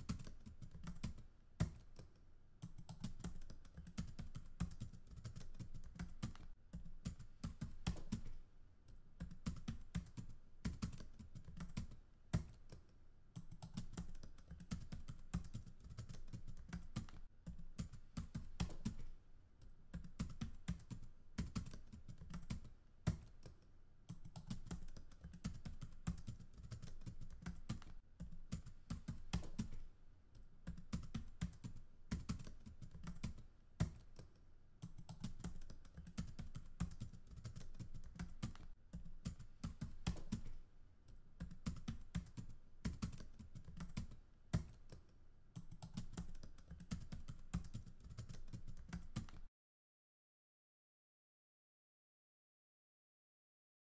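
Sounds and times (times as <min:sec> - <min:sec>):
typing on computer keyboard: 0:00.0 - 0:08.4, 0:09.2 - 0:19.2, 0:19.9 - 0:29.9, 0:30.6 - 0:49.5.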